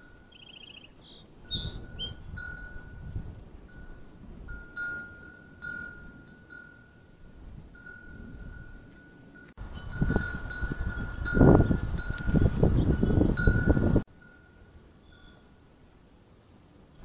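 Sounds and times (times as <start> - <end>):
wind chime ringing: 0.0 - 0.7, 1.5 - 15.6
bird chirps and trill: 0.0 - 2.9, 10.8 - 15.5
wind buffeting microphone: 0.0 - 14.1.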